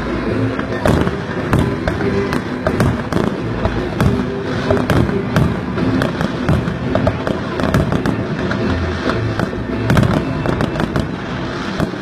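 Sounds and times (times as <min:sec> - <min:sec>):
fireworks bangs and cracks: 0:00.0 - 0:12.0.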